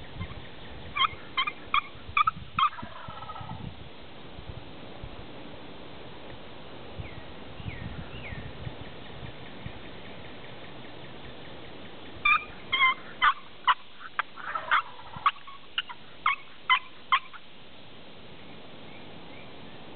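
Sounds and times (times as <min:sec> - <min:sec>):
wild turkey calling: 0:00.0 - 0:03.6, 0:07.6 - 0:17.5.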